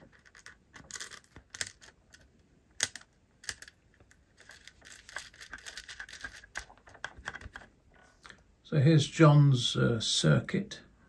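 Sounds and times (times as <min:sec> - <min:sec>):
small metal clicks: 0:00.1 - 0:07.6
rustling: 0:03.4 - 0:08.3.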